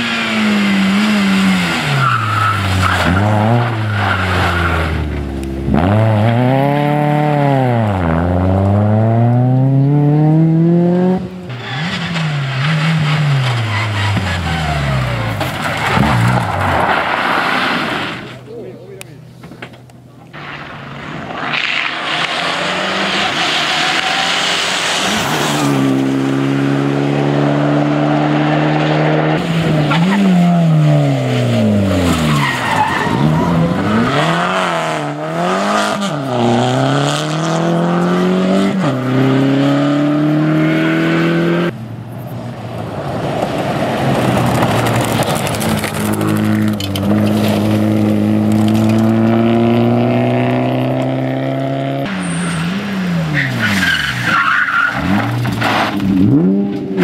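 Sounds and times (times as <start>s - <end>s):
rally car engines revving: 0.0s - 18.5s, 19.6s - 57.0s
tyres sliding on gravel: 11.5s - 19.7s, 20.3s - 26.4s, 29.4s - 34.6s, 42.5s - 49.6s, 52.1s - 57.0s.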